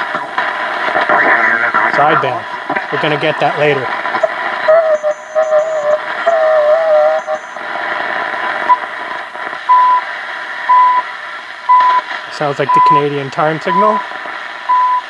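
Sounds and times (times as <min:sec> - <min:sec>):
shortwave radio static: 0:00.0 - 0:15.0
wavering radio tuning whistle: 0:03.0 - 0:07.8, 0:09.7 - 0:10.1, 0:10.7 - 0:11.1
short beeps: 0:04.2 - 0:07.7, 0:09.7 - 0:10.0, 0:10.7 - 0:11.0, 0:11.7 - 0:12.0, 0:14.7 - 0:15.0.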